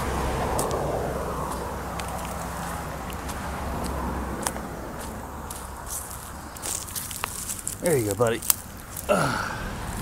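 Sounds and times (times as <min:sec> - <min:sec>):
flip-flop footsteps on dry leaves: 0:01.4 - 0:09.1
twigs crackling: 0:01.4 - 0:09.3.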